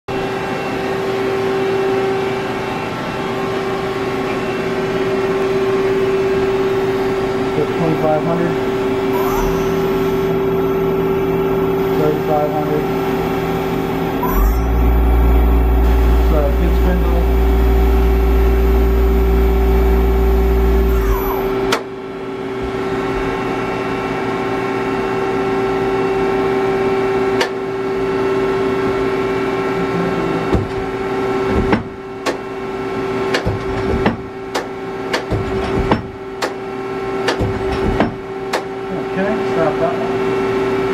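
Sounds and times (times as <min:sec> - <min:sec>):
lathe humming: 0:02.5 - 0:21.8
heavy low rumble: 0:08.6 - 0:21.7.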